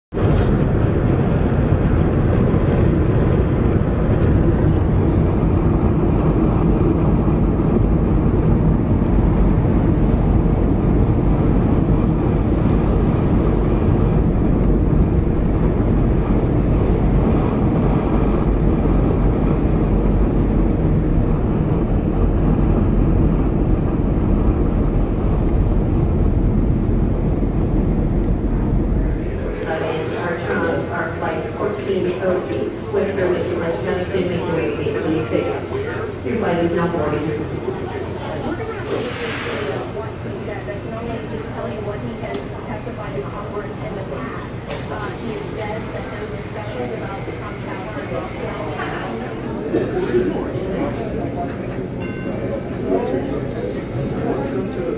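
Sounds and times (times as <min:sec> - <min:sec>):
rushing air: 0:00.1 - 0:30.3, 0:38.8 - 0:40.2
jet engine hum: 0:00.1 - 0:52.0.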